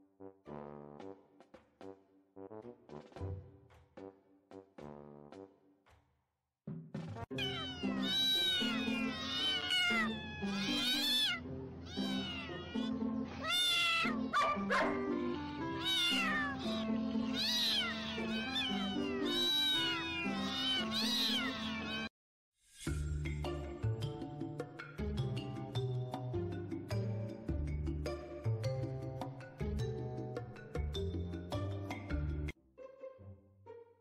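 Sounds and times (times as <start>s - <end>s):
background music with low notes: 6.7s - 22.1s, 22.8s - 34.0s
cat meowing: 7.3s - 22.1s.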